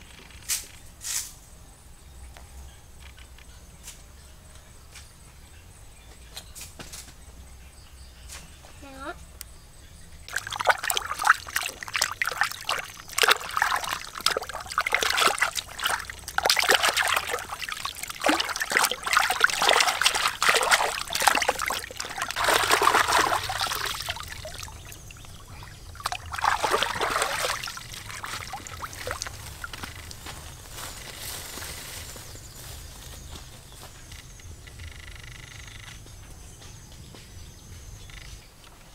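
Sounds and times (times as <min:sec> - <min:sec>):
water splashing and sloshing: 0:10.2 - 0:31.0.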